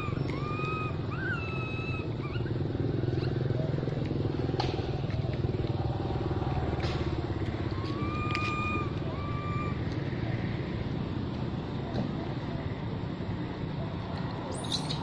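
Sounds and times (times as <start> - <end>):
baby monkey whistling cries: 0.0 - 2.6, 7.7 - 9.9, 14.5 - 15.0
engine humming: 0.0 - 15.0.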